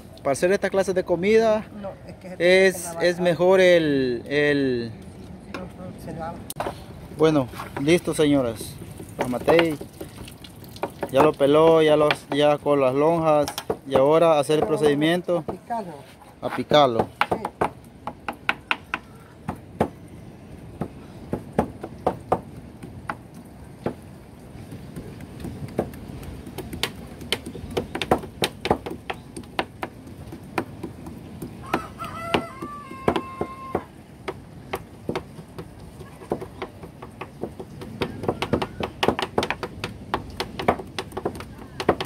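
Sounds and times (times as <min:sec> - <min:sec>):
rooster crowing: 0:31.6 - 0:34.0, 0:38.0 - 0:39.0.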